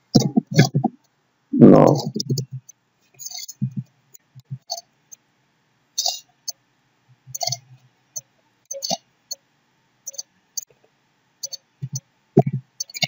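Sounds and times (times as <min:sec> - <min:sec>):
mouse and keyboard clicks: 0:11.4 - 0:13.0.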